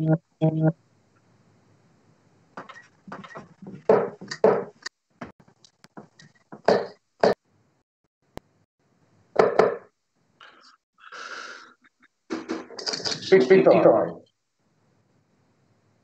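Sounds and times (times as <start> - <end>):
sharp knocks and thuds: 2.6 - 5.3.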